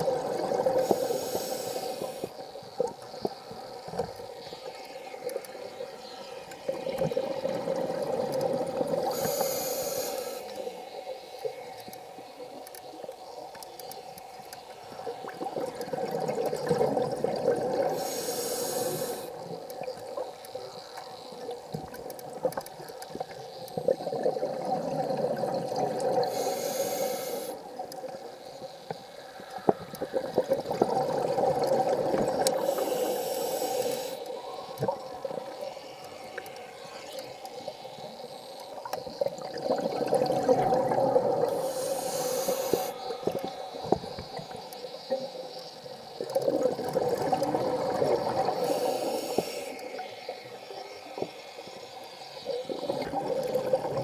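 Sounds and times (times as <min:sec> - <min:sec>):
diver breathing through regulator: 0:00.8 - 0:02.4, 0:09.0 - 0:10.6, 0:17.9 - 0:19.4, 0:26.2 - 0:27.6, 0:32.6 - 0:34.3, 0:41.5 - 0:43.5, 0:48.6 - 0:49.8.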